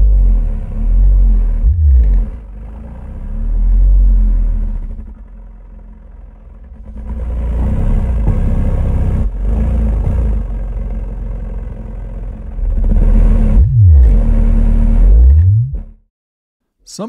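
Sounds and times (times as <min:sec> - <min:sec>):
subwoofer playing deep bass: 0:00.0 - 0:05.2, 0:12.6 - 0:15.9.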